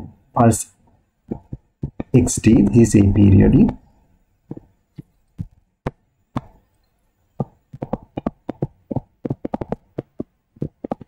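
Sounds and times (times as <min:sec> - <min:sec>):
stylus tapping on tablet: 0:01.3 - 0:02.6, 0:04.5 - 0:06.6, 0:07.4 - 0:11.0.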